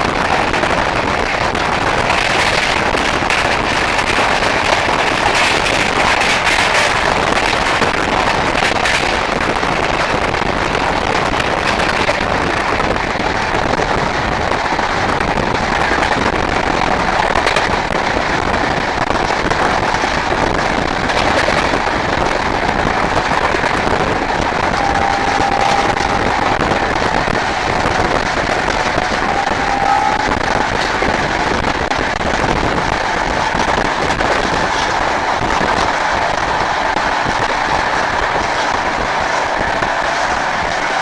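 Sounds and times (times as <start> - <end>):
train rushing and rattling: 0.0 - 41.0
wind buffeting microphone: 0.0 - 41.0.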